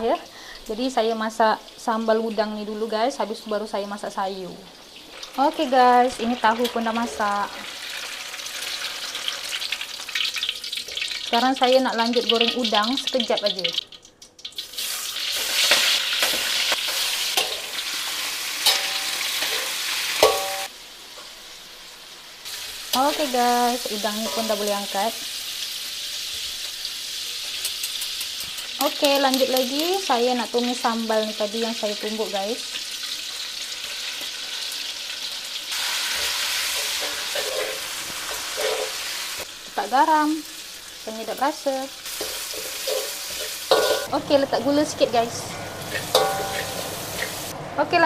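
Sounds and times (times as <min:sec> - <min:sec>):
prawns sizzling in hot oil: 0:00.0 - 0:47.5
metal spatula scraping wok: 0:14.8 - 0:20.7, 0:35.7 - 0:39.4, 0:42.1 - 0:44.2, 0:45.2 - 0:47.5.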